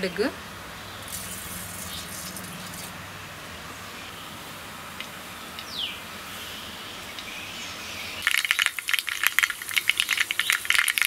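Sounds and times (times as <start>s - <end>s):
seeds popping in hot oil: 1.1s - 2.9s, 8.2s - 11.0s.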